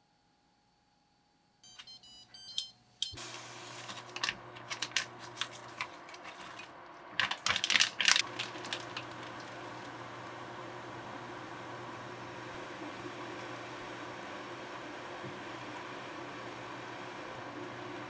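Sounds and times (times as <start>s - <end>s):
cooktop beeping: 1.6s - 5.2s
cooktop humming: 2.5s - 18.0s
plastic bag crinkling: 3.6s - 9.8s.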